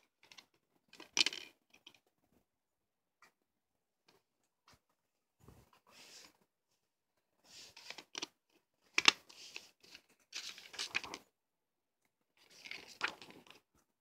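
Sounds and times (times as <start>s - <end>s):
paper rustling and crinkling: 8.9s - 11.2s, 12.4s - 13.6s.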